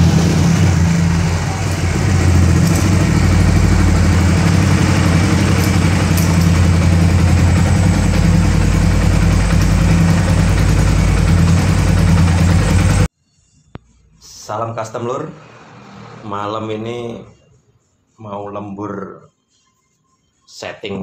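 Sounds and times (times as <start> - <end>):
motorcycle engine idling: 0.0 - 13.1.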